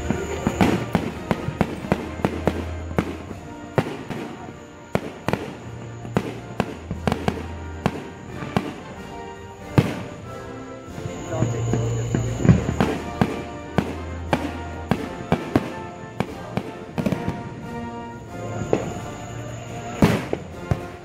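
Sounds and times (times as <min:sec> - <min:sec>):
fireworks bangs and crackles: 0:00.0 - 0:21.0.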